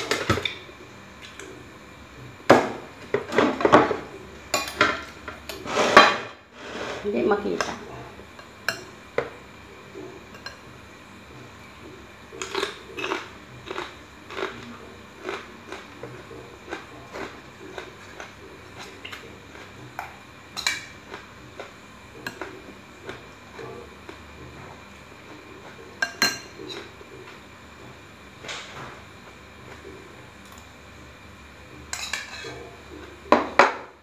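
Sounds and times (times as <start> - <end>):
spoon clinking against bowls: 26.0 - 26.9, 31.9 - 32.6.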